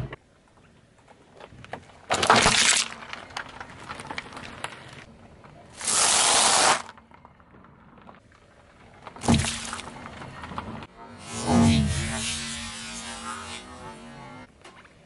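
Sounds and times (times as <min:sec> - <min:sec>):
crunching under a car tyre: 0:00.9 - 0:10.9
hiss: 0:05.8 - 0:06.9.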